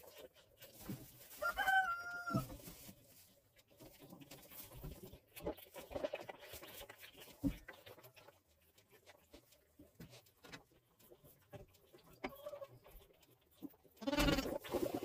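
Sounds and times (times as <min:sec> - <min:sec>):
animal call: 0:14.0 - 0:14.6.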